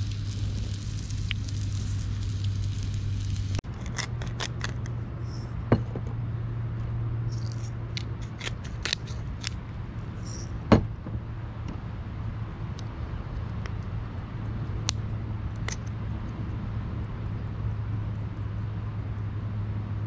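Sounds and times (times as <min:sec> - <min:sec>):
steady low hum: 0:00.0 - 0:20.0
plate clicks and scrapes: 0:03.7 - 0:05.5, 0:07.4 - 0:09.6.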